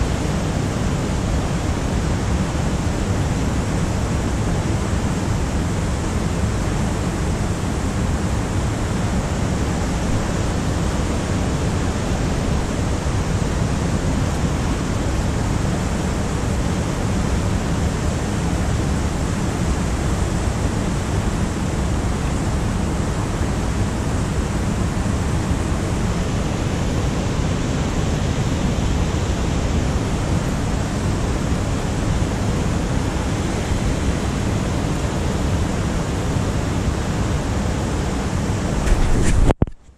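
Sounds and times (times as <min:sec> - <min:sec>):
stream rushing over rocks: 0:00.0 - 0:39.7.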